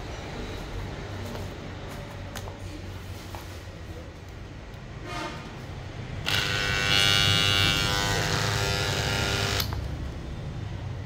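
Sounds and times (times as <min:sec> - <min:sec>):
impact wrench motor whining: 0:06.2 - 0:09.8.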